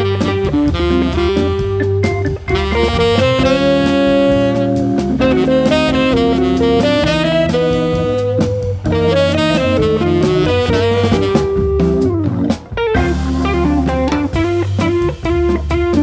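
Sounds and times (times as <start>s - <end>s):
tenor saxophone long notes: 0.0s - 12.2s
drum kit: 0.0s - 16.0s
hammond organ: 0.0s - 16.0s.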